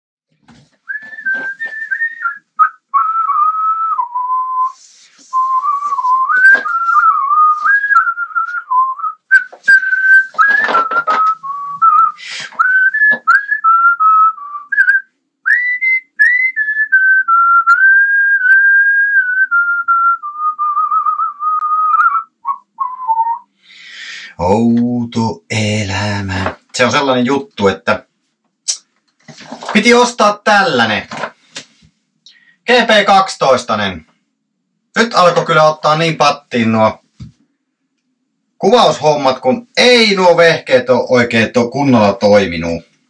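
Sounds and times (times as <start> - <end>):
person whistling a tune: 0.9 - 23.5.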